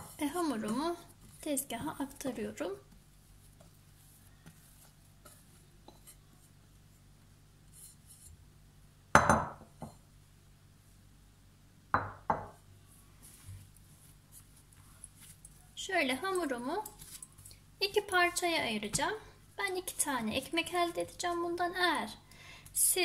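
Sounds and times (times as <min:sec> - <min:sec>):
glass bowl knocking on stone worktop: 0:09.2 - 0:10.0, 0:11.9 - 0:12.6.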